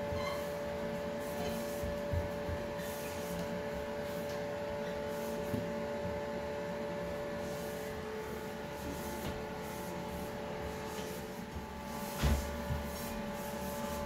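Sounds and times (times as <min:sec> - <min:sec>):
steady hum: 0:00.0 - 0:14.0
cloth rubbing on metal tubes: 0:07.4 - 0:14.0.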